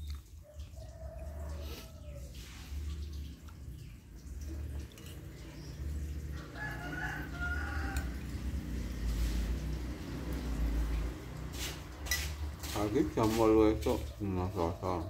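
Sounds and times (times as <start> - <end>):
rooster crowing: 6.3 - 8.5.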